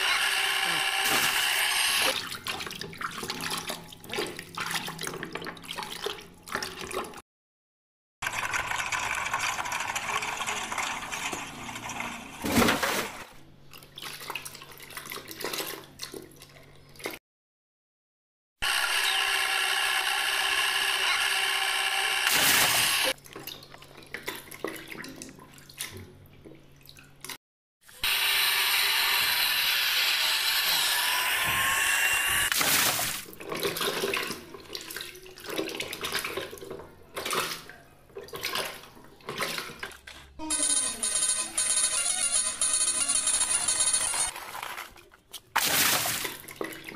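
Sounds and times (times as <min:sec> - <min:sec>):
water splashing and sloshing: 0:01.1 - 0:07.2, 0:08.3 - 0:17.2, 0:22.3 - 0:27.4, 0:32.5 - 0:40.4, 0:44.3 - 0:46.9.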